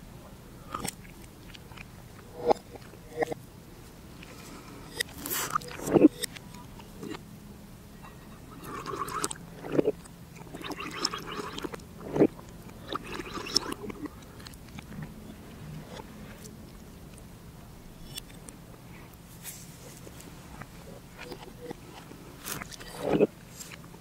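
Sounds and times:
slurping and gulping drink: 4.2 - 7.2, 8.3 - 17.2, 20.0 - 24.0.

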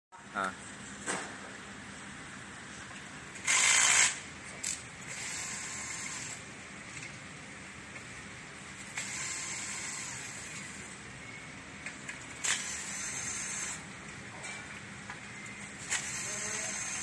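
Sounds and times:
cordless drill driving screws: 3.4 - 4.2, 12.4 - 13.8, 15.9 - 17.0.

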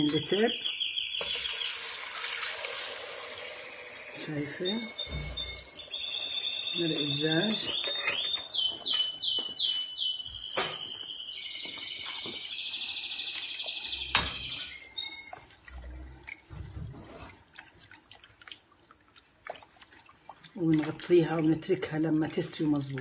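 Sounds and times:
songbird singing: 0.0 - 2.1, 4.0 - 16.3.

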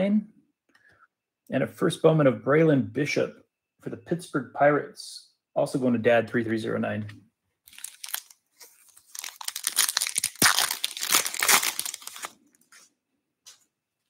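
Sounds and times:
foil wrapper crinkling and tearing: 7.7 - 12.4.

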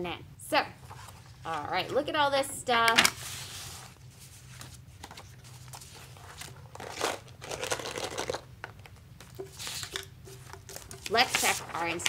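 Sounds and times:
paper rustling: 3.0 - 8.4, 9.4 - 12.0.

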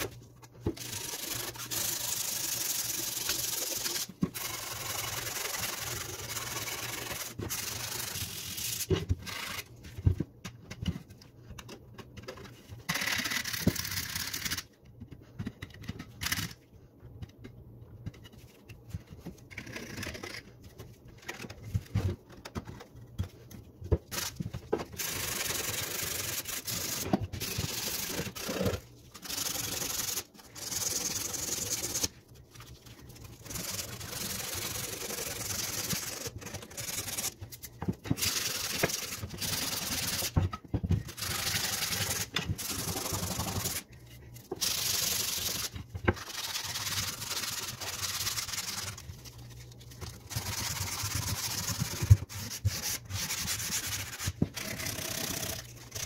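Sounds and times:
sandpaper scratching on wood: 41.2 - 43.8, 44.6 - 49.0, 50.3 - 56.0.

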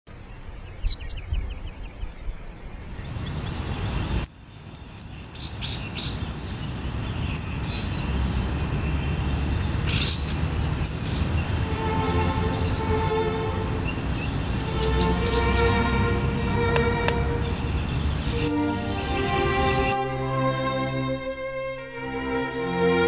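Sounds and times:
low outdoor rumble: 0.1 - 4.8, 5.4 - 18.8
songbirds chirping: 0.1 - 21.4.

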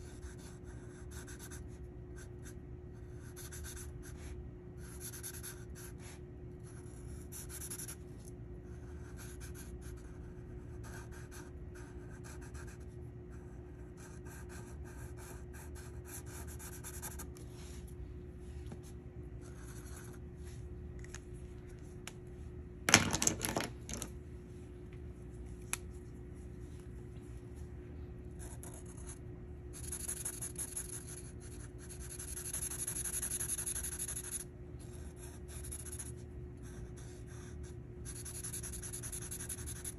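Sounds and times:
marker scratching on paper: 0.0 - 17.4, 19.4 - 20.2, 28.4 - 39.9
faint steady hum: 0.0 - 39.9.

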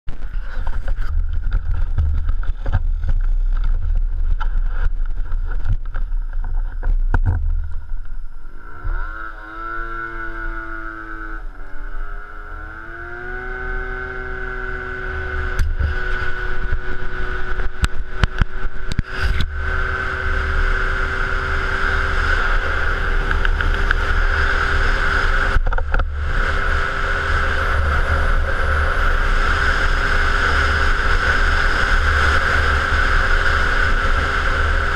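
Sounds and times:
wind rumble: 0.1 - 34.9
scooter engine revving: 8.5 - 34.9.

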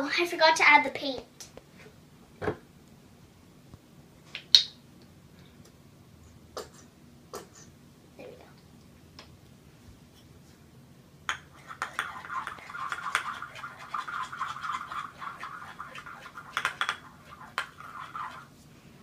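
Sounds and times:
spoon tapping bowl: 11.3 - 18.5
spoon stirring slime: 11.3 - 18.6.

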